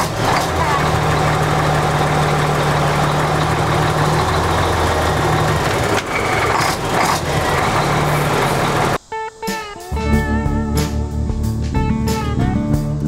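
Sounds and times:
diesel truck engine idling: 0.0s - 9.0s.

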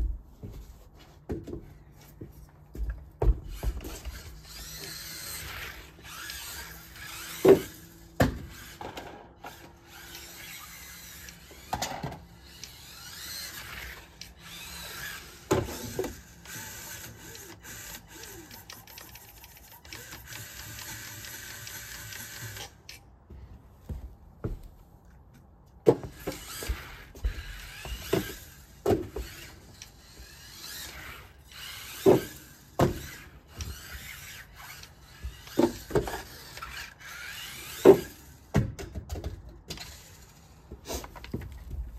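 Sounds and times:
toy car knocks and crashes: 3.5s - 10.2s, 10.8s - 22.6s, 25.8s - 29.8s, 30.6s - 34.3s, 35.2s - 40.1s
small electric motor whining: 3.5s - 23.0s, 26.1s - 38.5s, 39.7s - 40.8s.

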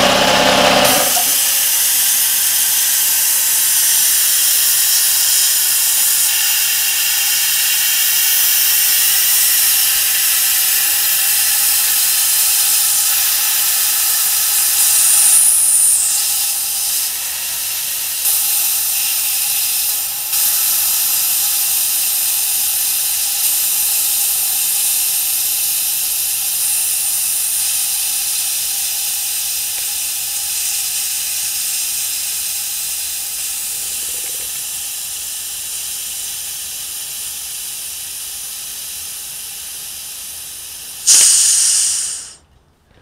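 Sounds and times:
air compressor hissing: 0.0s - 42.5s
short blast of air: 38.1s - 42.4s.

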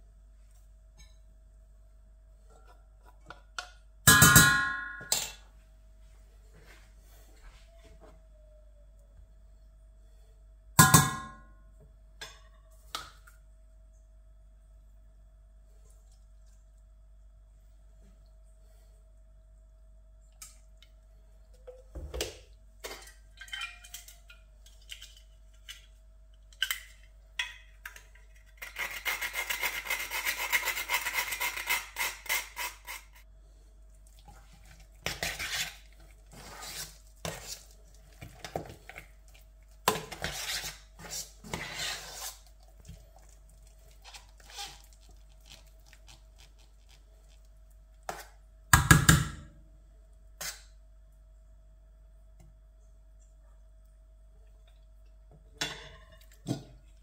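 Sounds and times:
spoon scraping a metal pot: 35.0s - 37.8s, 39.9s - 42.5s.

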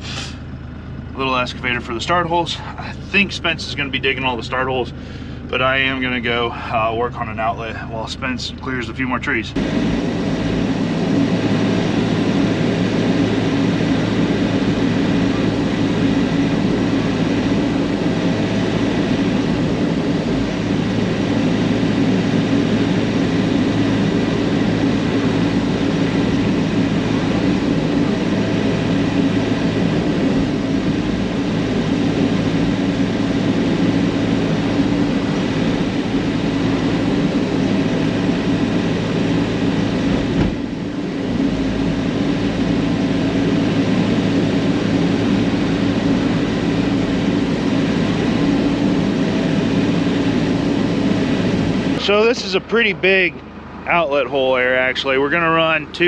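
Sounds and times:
excavator hydraulics working: 0.0s - 0.6s
diesel engine running under load: 0.0s - 56.0s.

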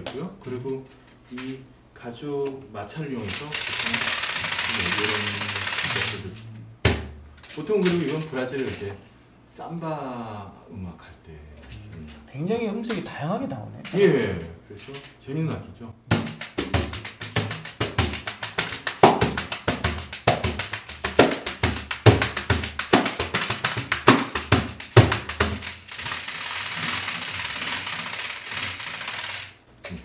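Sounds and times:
frame drum thumps: 6.8s - 7.4s, 16.1s - 25.8s
metal jingles rattling: 7.3s - 9.1s, 13.8s - 15.2s.

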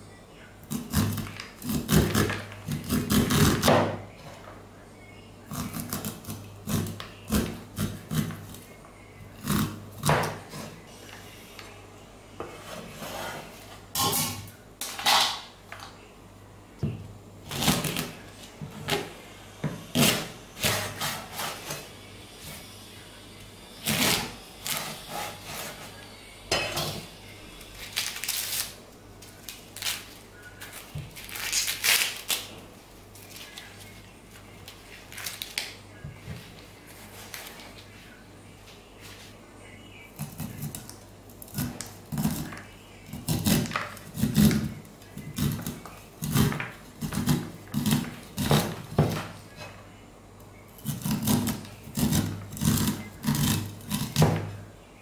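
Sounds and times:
corn husks rustling: 27.6s - 32.5s.

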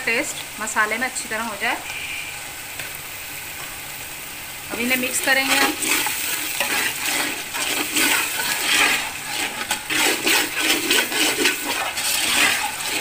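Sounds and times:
sizzling and bubbling in a pot: 0.0s - 13.0s
ladle scraping a steel pot: 5.2s - 13.0s.

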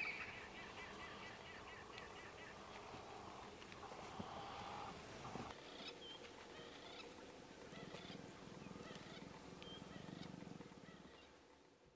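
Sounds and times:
birds chirping and whistling: 0.0s - 2.6s.

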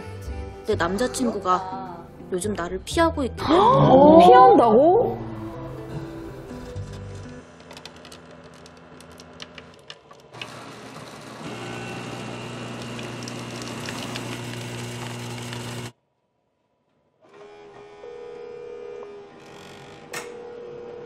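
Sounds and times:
coffee machine humming: 6.6s - 16.0s.

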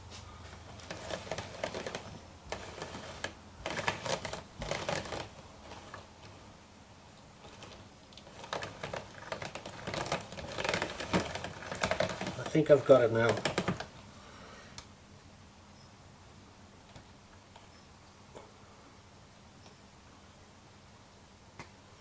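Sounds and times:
drum carder clicking and rattling: 0.7s - 6.4s, 7.4s - 13.9s.

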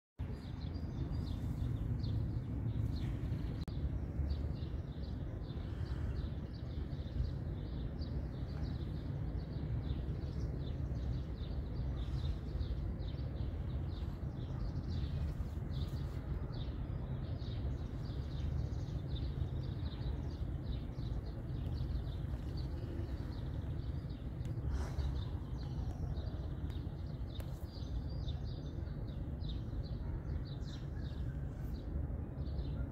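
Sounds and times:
small birds chirping: 0.2s - 32.9s
steady low rumble: 0.2s - 32.9s.

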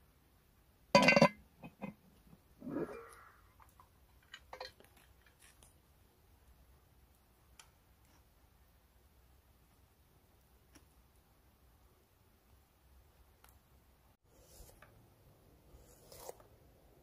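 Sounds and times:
metal pot lid scraping and ringing: 1.0s - 2.0s.

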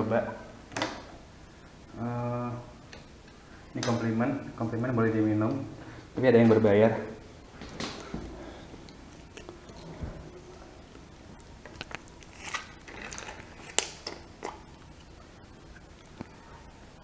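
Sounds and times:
small handling clicks and crinkles: 10.9s - 14.2s.

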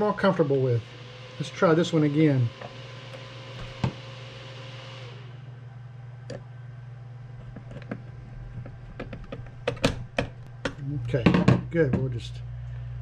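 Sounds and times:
steady low hum: 5.1s - 13.0s.

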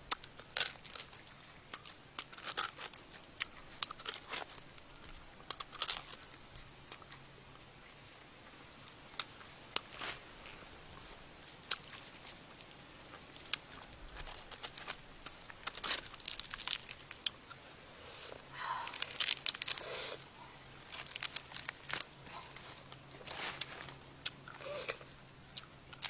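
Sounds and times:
charred meat tearing and crackling: 0.1s - 7.2s, 11.5s - 17.6s, 18.8s - 26.0s.

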